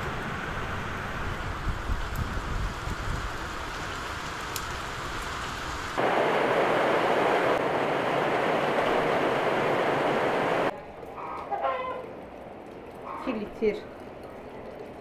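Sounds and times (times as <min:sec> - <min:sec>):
wind rumbling on microphone: 0:00.0 - 0:10.7
rain falling: 0:00.0 - 0:15.0.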